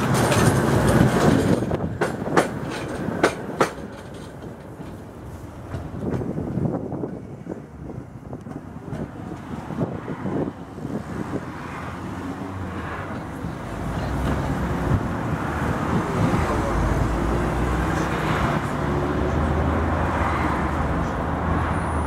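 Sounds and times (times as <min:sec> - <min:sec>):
road traffic: 0:00.0 - 0:22.0
tram on street track: 0:00.0 - 0:22.0.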